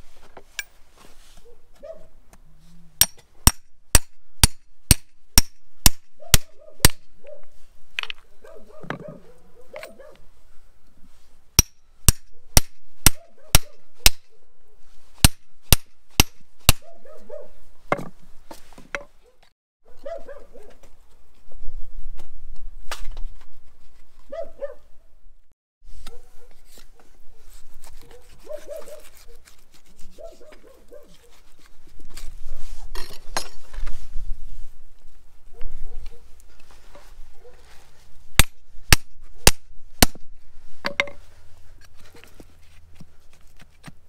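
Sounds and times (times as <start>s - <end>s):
hatchet striking knife: 3.0s - 7.1s, 11.6s - 14.3s, 15.2s - 16.9s, 38.4s - 41.2s.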